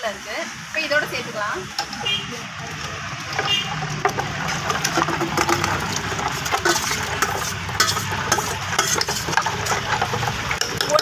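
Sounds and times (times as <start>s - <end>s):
spoon scraping steel bowl: 3.4s - 11.0s.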